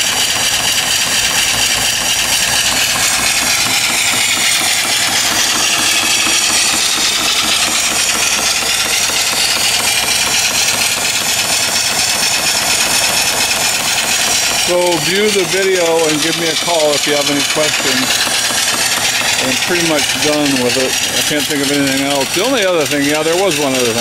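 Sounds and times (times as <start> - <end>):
steam engine exhaust chuffs: 0.0 - 24.0
steam hissing: 0.0 - 24.0.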